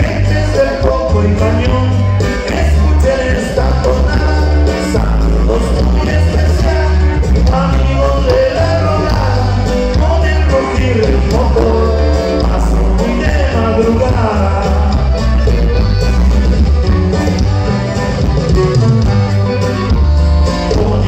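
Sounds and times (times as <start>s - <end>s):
person singing: 0.0s - 15.5s, 20.6s - 21.0s
bass line: 0.0s - 21.0s
live band playing: 0.0s - 21.0s.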